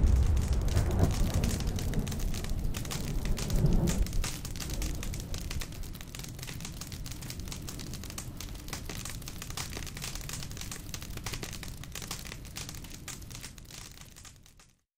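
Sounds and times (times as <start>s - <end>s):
low rumble: 0.0s - 7.8s
fire crackling: 0.0s - 14.8s.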